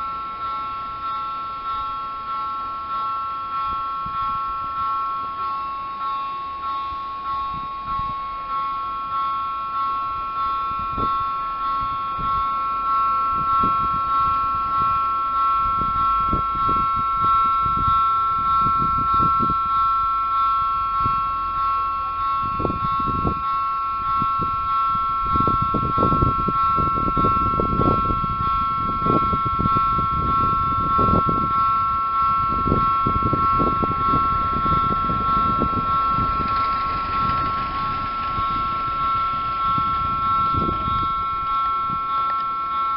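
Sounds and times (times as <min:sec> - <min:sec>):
two-tone electronic warning bell: 0:00.0 - 0:42.9
low rumbling: 0:32.4 - 0:42.3.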